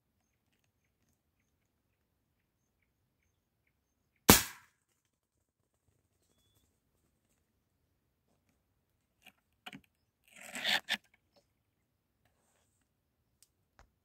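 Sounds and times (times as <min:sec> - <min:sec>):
shotgun shot: 0:04.3 - 0:04.7.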